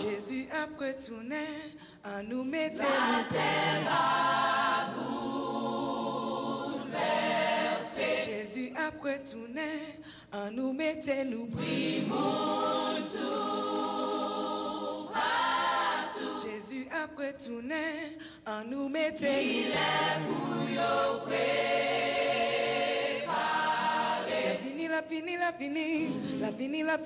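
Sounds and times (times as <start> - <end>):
choir singing a cappella: 0.0 - 9.9, 10.8 - 18.1, 18.8 - 27.0.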